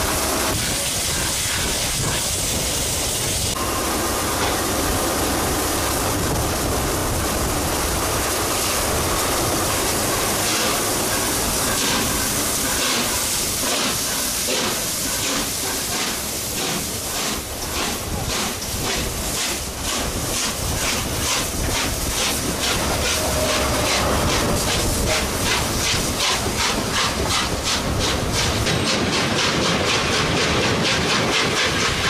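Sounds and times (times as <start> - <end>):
steam locomotive hissing: 0.0 - 32.0.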